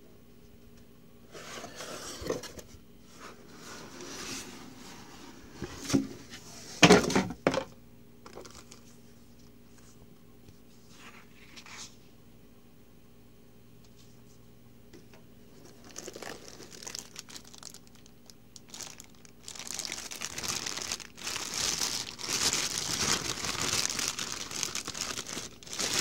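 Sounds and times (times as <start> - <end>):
paper manual rustling: 15.5 - 26.0.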